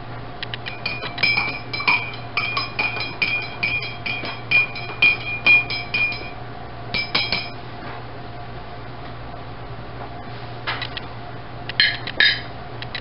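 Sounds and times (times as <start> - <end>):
metal utensil clinking on pot: 0.7 - 7.6, 11.8 - 12.5.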